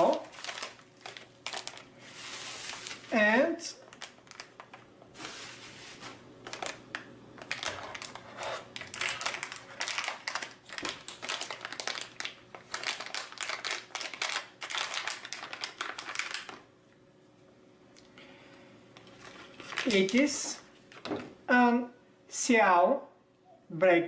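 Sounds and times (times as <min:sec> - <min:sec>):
plastic bag crinkling: 0:00.0 - 0:16.7, 0:19.0 - 0:21.2.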